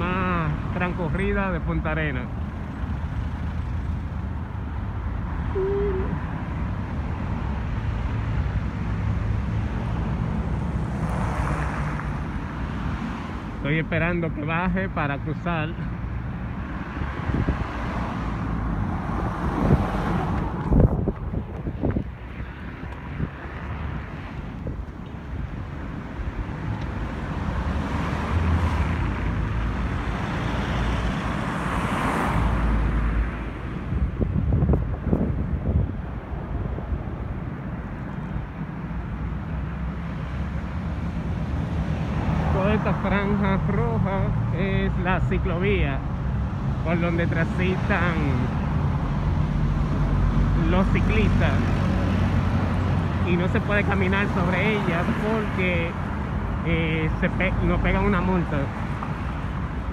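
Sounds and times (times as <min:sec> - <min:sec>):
cars driving past: 0:00.0 - 0:59.9
car passing by: 0:07.3 - 0:13.6, 0:16.8 - 0:21.1, 0:27.3 - 0:34.0
wind rumbling on microphone: 0:16.4 - 0:39.0.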